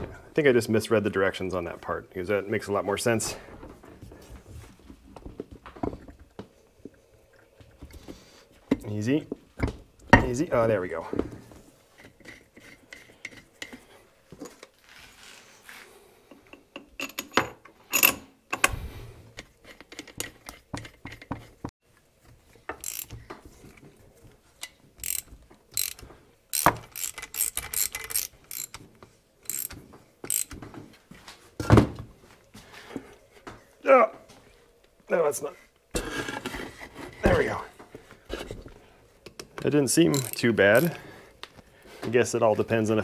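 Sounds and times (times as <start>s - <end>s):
metallic clicks and clinks: 22.8s - 23.1s, 24.6s - 28.8s, 29.4s - 30.6s, 40.1s - 41.0s.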